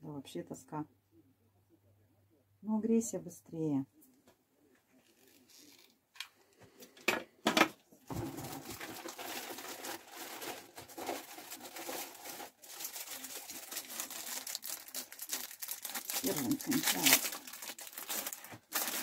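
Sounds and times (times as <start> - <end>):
plastic wrapping crinkling: 8.1 - 19.0.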